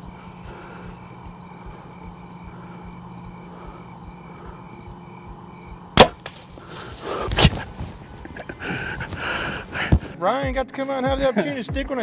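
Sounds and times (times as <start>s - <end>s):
insects chirping: 0.0s - 10.2s
bow string crack: 6.0s - 8.0s.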